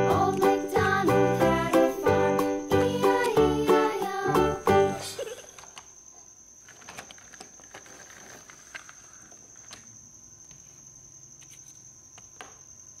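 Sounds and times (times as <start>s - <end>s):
plastic toy vehicles clicking: 6.6s - 9.9s.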